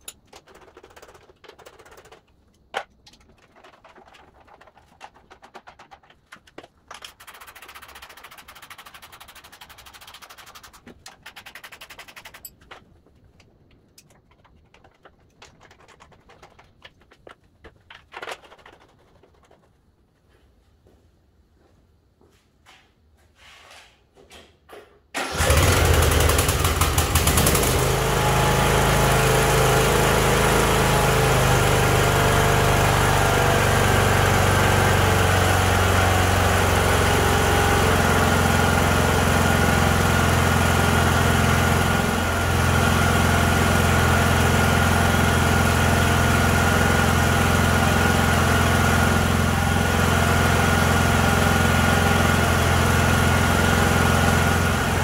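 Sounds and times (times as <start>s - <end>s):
lawn mower engine running: 25.2s - 55.0s.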